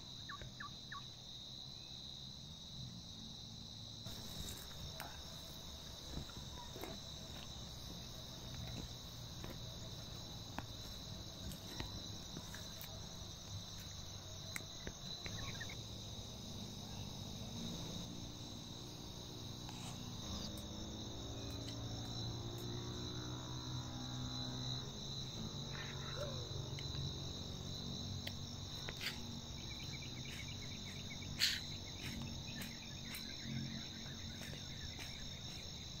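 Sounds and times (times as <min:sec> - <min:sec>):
high-pitched insect trilling: 0:10.6 - 0:36.0.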